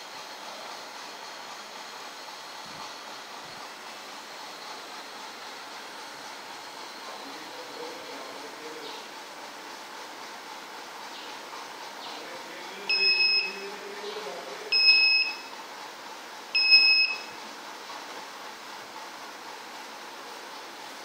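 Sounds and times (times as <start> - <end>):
high-pitched buzzer beeps: 12.9 - 13.6, 14.7 - 15.5, 16.6 - 17.4.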